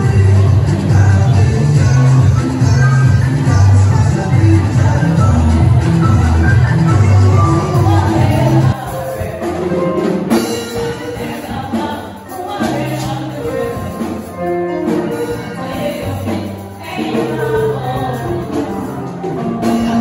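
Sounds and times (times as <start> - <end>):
bass-heavy dance music: 0.0 - 9.3
women singing gospel song: 7.7 - 9.7, 10.7 - 14.2, 15.3 - 20.0.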